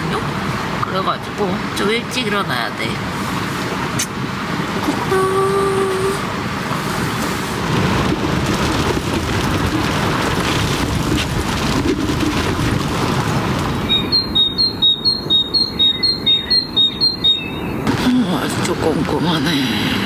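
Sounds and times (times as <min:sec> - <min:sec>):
strong wind buffeting a tent: 0:05.7 - 0:16.5
rapid high-pitched beeping: 0:13.9 - 0:17.8.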